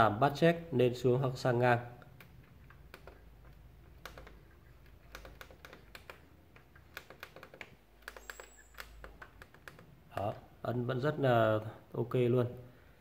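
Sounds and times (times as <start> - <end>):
plastic buttons clicking: 2.0 - 10.4.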